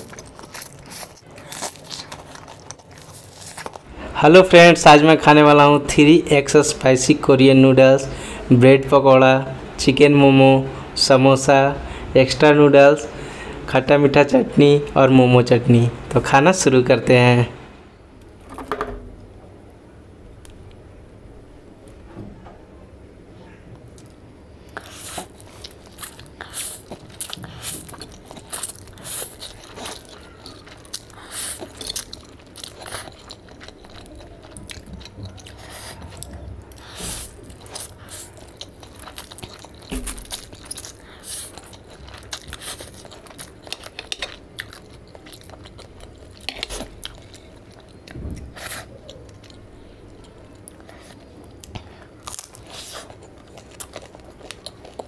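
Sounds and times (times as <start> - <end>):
chewing noodles: 0.0 - 3.9, 24.0 - 55.0.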